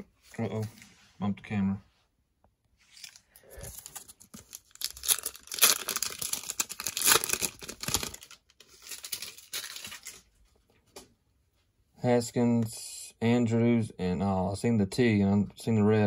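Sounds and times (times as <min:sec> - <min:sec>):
plastic wrapper tearing and crinkling: 0:02.9 - 0:10.4.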